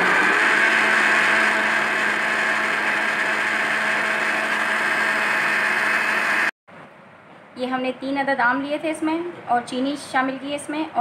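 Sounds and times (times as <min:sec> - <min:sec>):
blender motor whirring: 0:00.0 - 0:06.6.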